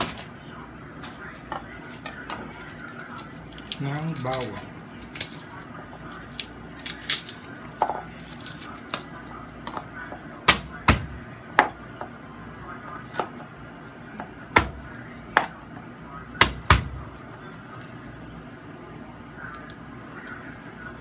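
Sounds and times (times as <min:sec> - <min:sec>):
knife chopping on plastic board: 0:10.5 - 0:11.8, 0:14.2 - 0:15.6, 0:16.4 - 0:17.1.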